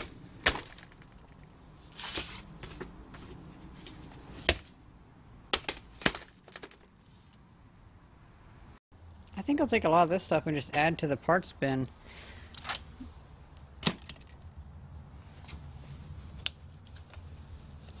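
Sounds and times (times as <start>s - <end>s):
brushing scrape: 1.9s - 3.9s.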